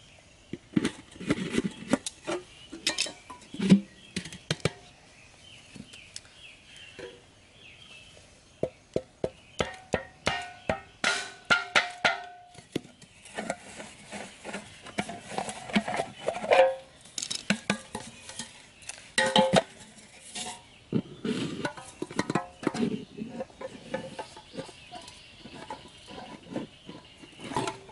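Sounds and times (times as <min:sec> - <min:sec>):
metal tin and stakes clattering: 0:02.8 - 0:03.6, 0:09.7 - 0:12.6, 0:15.0 - 0:18.6, 0:19.2 - 0:20.7, 0:21.6 - 0:27.9
faint bird chirps: 0:20.2 - 0:27.9.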